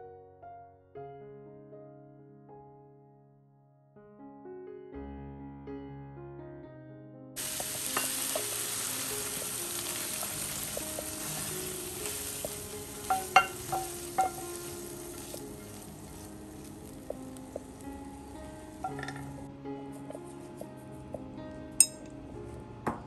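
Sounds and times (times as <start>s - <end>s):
soft piano music: 0.0s - 23.0s
spatula knocking on pan: 7.4s - 17.8s, 18.8s - 19.4s
frying pan sizzling: 7.4s - 19.5s.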